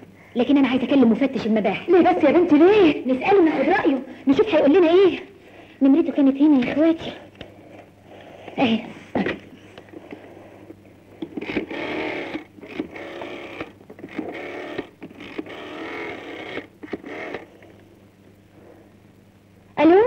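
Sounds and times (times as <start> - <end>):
rotary telephone dial whirring: 11.2 - 17.9.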